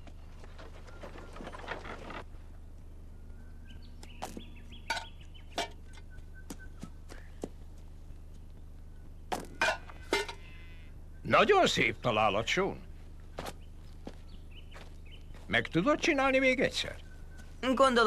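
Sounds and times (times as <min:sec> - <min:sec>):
faint birds chirping: 0:00.0 - 0:18.0
stones striking tin cans: 0:04.2 - 0:06.0, 0:09.4 - 0:10.4.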